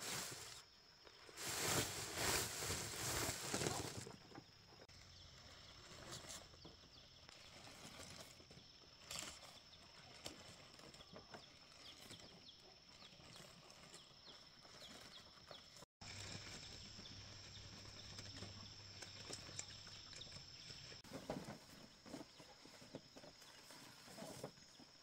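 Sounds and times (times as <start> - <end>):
corn cobs pouring from sack: 1.4 - 4.1.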